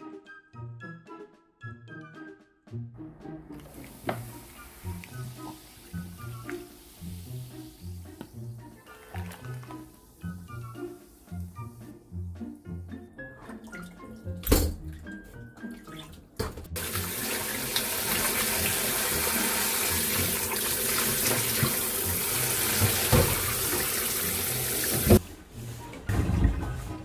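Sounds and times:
faint background music: 0.0s - 27.0s
tap water splashing into bowl: 3.5s - 6.8s, 8.0s - 9.9s, 20.1s - 24.1s.

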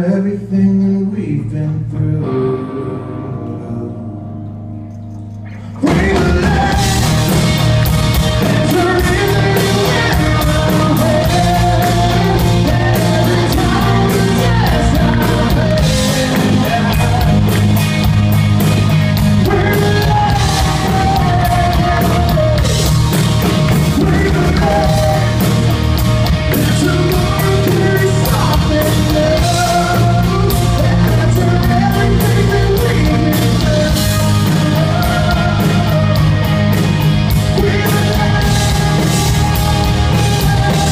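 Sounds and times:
man singing: 0.0s - 4.6s, 5.6s - 17.8s, 19.2s - 40.9s
electric guitar: 0.0s - 40.9s
live rock band playing: 2.0s - 40.9s
drums: 4.9s - 40.9s.

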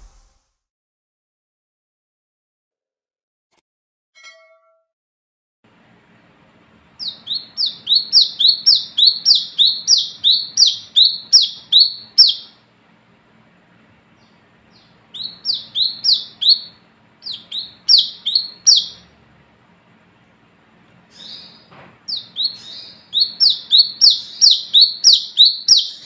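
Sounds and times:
sunbird calling sharp notes: 7.0s - 12.6s, 14.2s - 19.1s, 21.1s - 26.0s.

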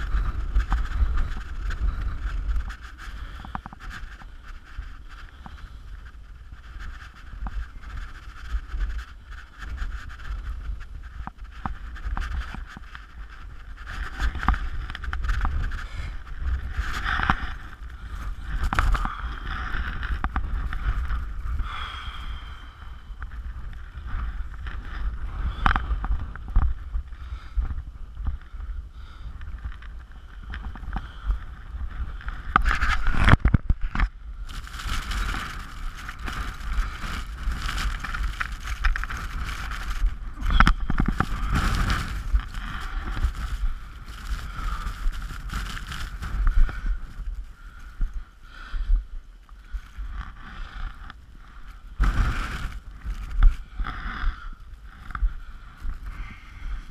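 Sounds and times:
clothing and gear rustling: 0.0s - 27.0s, 34.5s - 48.2s, 52.0s - 54.3s
strong wind buffeting microphone: 0.0s - 56.9s.

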